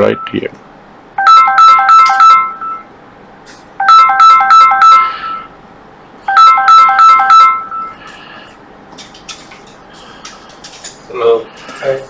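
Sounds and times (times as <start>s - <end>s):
mobile phone ringtone: 1.2s - 2.9s, 3.8s - 5.5s, 6.2s - 8.0s.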